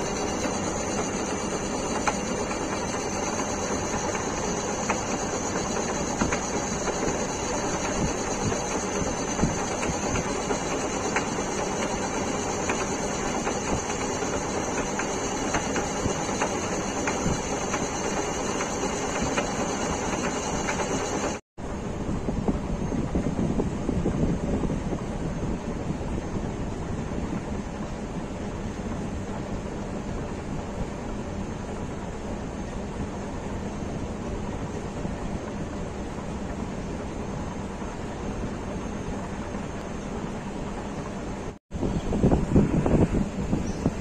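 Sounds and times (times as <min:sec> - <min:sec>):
metal lathe running: 0:00.0 - 0:21.4
constant high whine: 0:00.0 - 0:44.0.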